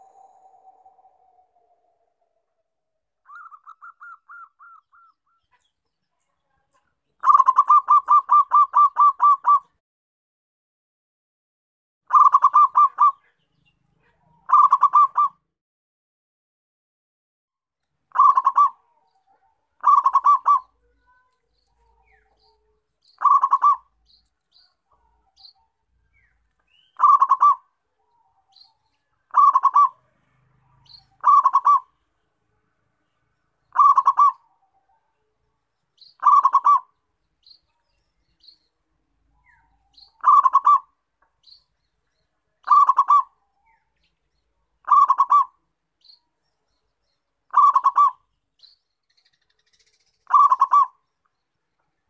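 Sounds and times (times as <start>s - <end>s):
dove cooing: 0.0s - 2.4s, 3.3s - 5.5s, 7.2s - 9.8s, 12.1s - 13.4s, 14.0s - 15.4s, 18.1s - 21.0s, 21.8s - 24.0s, 27.0s - 28.7s, 29.3s - 30.0s, 30.7s - 31.9s, 33.7s - 34.6s, 36.2s - 37.0s, 39.5s - 40.9s, 42.6s - 43.4s, 44.8s - 45.6s, 47.5s - 48.2s, 50.3s - 51.0s
faint high chirps: 0.0s - 9.8s, 17.8s - 52.0s.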